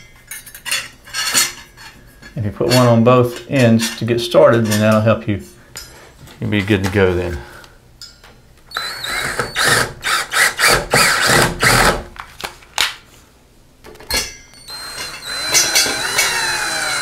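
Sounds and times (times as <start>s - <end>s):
cordless drill driving screws: 8.7s - 12.0s, 14.6s - 17.0s.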